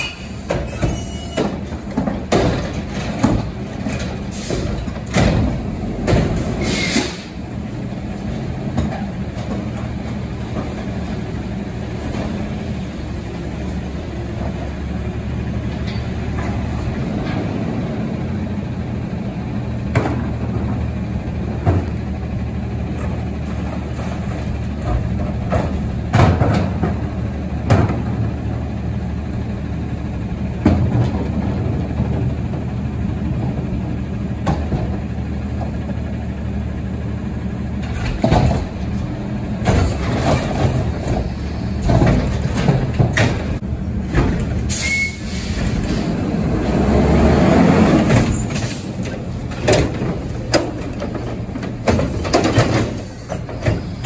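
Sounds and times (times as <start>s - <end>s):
clunks and bangs: 0.0s - 7.3s, 8.0s - 12.6s, 19.8s - 20.8s, 21.5s - 22.1s, 22.9s - 28.4s, 30.6s - 35.8s, 37.8s - 44.8s, 46.7s - 54.0s
diesel engine running: 0.0s - 54.0s.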